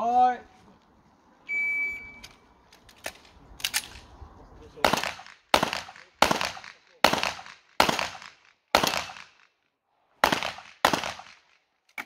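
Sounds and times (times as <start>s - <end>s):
pistol shots with echo: 4.8s - 9.4s, 10.2s - 11.4s.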